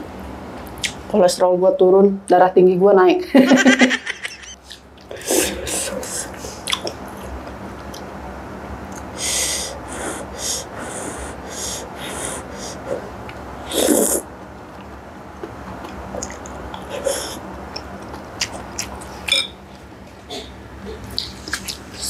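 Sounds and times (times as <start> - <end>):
person chewing: 6.6 - 8.1, 12.6 - 22.0
sharp breaths through lips: 9.1 - 14.2
person slurping noodles: 10.0 - 14.2.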